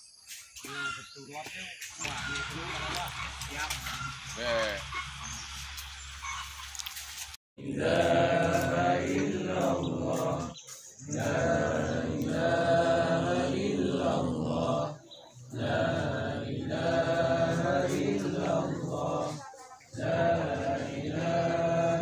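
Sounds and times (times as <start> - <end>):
men chanting in unison: 7.6 - 22.0.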